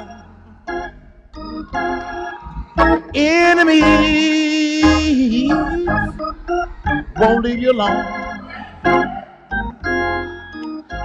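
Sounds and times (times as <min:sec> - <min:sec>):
organ playing chords: 0:00.0 - 0:11.0
man singing a long note: 0:03.1 - 0:06.2.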